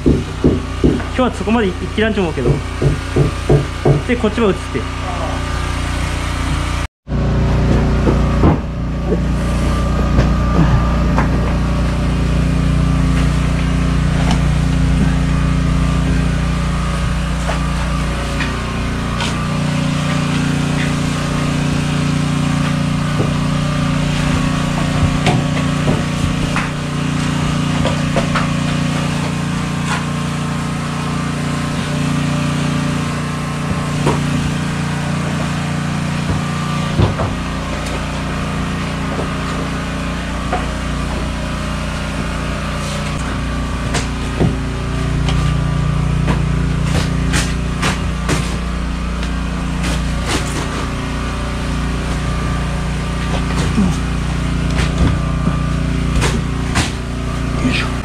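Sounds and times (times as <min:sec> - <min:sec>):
knocks on wooden floorboards: 0:00.0 - 0:01.2, 0:02.4 - 0:04.1, 0:07.6 - 0:09.3, 0:24.2 - 0:26.8, 0:36.2 - 0:37.4
engine droning: 0:00.0 - 0:58.0.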